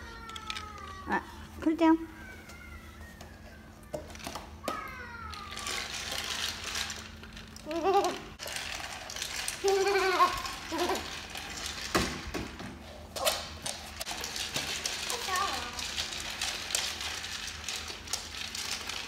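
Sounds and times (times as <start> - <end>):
plastic ball rattling on wooden floor: 5.5 - 19.0.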